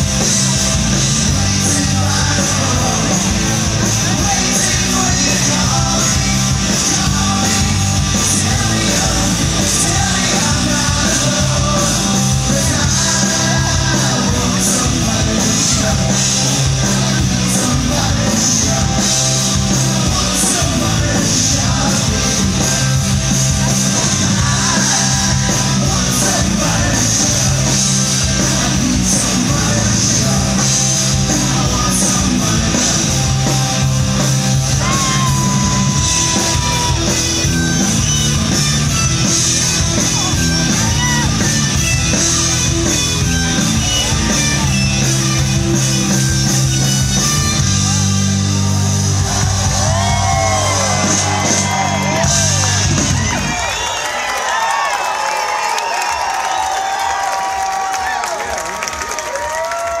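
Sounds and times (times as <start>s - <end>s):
lead vocal singing: 0.0s - 37.5s
bass guitar: 0.0s - 53.9s
electric guitars: 0.0s - 54.0s
drums: 0.0s - 60.0s.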